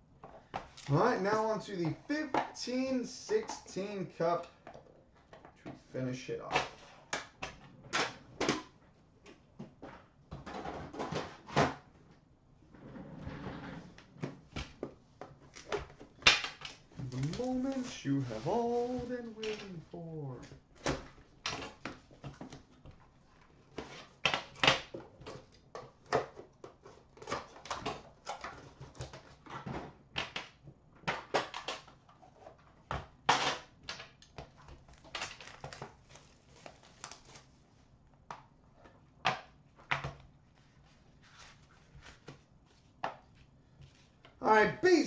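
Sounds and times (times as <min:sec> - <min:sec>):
packaging rustling and crinkling: 0:16.9 - 0:20.5, 0:34.6 - 0:37.8.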